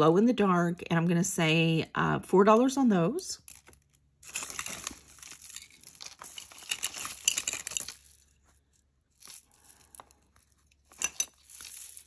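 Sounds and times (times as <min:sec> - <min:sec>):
plastic crinkling and rustling: 0:03.5 - 0:12.0.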